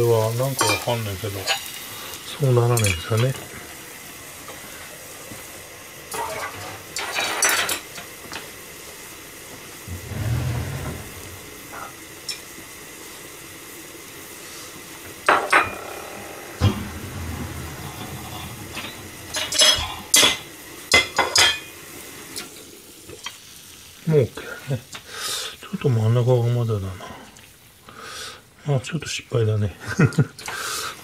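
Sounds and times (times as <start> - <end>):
food sizzling in covered pan: 0.0 - 31.0
metallic clatters: 9.9 - 12.4.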